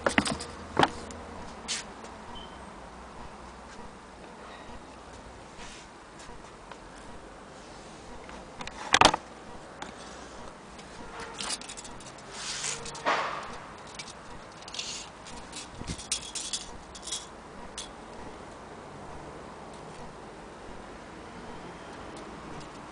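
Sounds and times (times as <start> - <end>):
light metallic clicks and rattles: 0.0 - 1.2, 10.8 - 18.6
rustling: 9.8 - 17.3.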